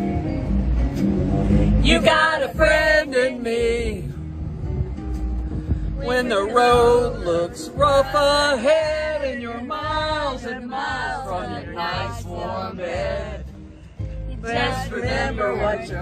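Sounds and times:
low road rumble: 0:00.0 - 0:16.0
people singing without instruments: 0:01.7 - 0:04.2, 0:05.9 - 0:16.0.

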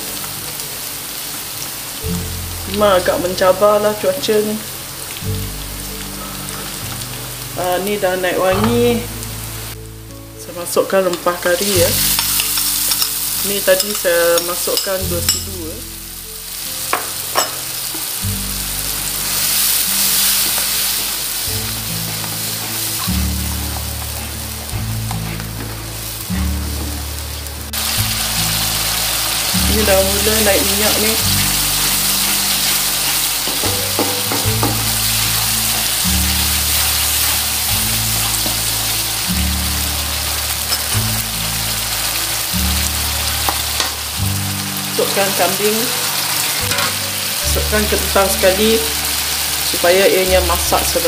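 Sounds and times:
spice paste sizzling in oil: 0:00.0 - 0:51.0
spatula stirring in wok: 0:11.2 - 0:15.4.

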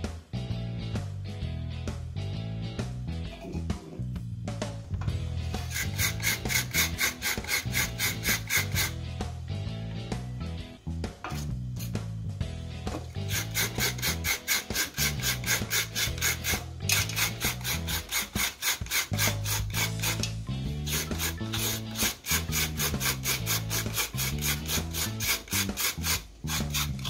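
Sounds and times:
coconut scraper rasping: 0:05.5 - 0:09.0, 0:13.2 - 0:27.0.

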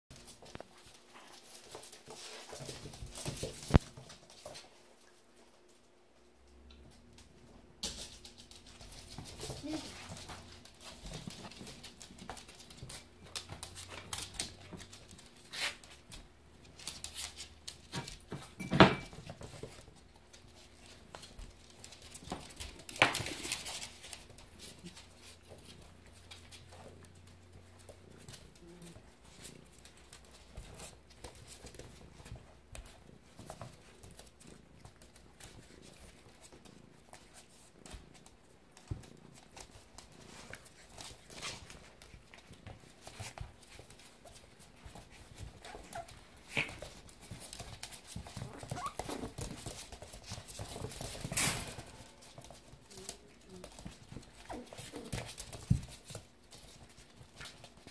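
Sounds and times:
paws scuffling on wooden floor: 0:00.1 - 0:57.9
puppy vocal noises: 0:44.9 - 0:50.9, 0:53.2 - 0:55.7.

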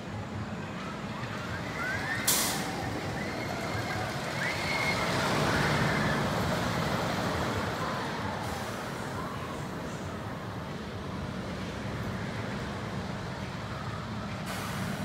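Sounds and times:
roller coaster rumbling on wooden track: 0:00.4 - 0:08.4.

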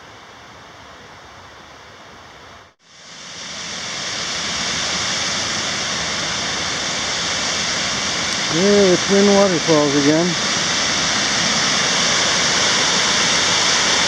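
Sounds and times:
faint steady hiss: 0:00.0 - 0:14.0
waterfall rushing: 0:02.9 - 0:14.0.

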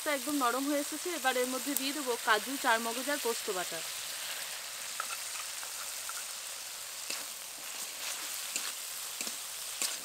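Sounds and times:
paste sizzling in oil: 0:00.0 - 0:10.0.

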